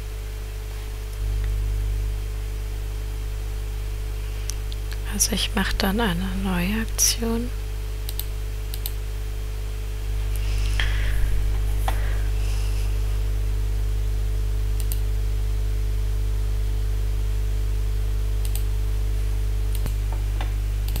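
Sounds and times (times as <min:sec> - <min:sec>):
low electrical hum: 0:00.0 - 0:21.0
faint clicks: 0:08.0 - 0:09.0, 0:14.8 - 0:15.0, 0:18.4 - 0:18.7, 0:19.7 - 0:21.0.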